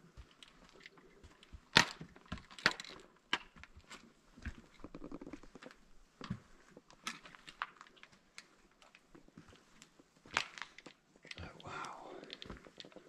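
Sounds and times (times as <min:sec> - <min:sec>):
footsteps on slate rubble: 0:00.0 - 0:04.9.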